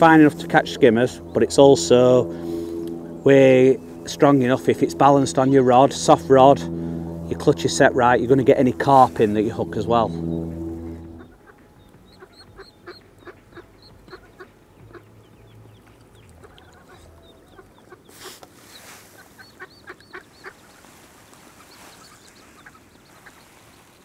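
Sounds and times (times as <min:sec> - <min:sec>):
ducks and geese calling: 0:00.0 - 0:24.0
small birds chirping: 0:09.4 - 0:24.0.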